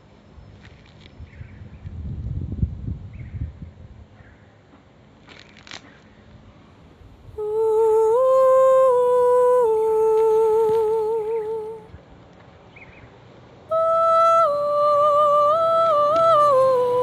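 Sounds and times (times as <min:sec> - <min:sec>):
faint rustle and click: 0:00.5 - 0:02.4, 0:04.7 - 0:06.4
person humming: 0:07.3 - 0:11.9, 0:13.7 - 0:17.0.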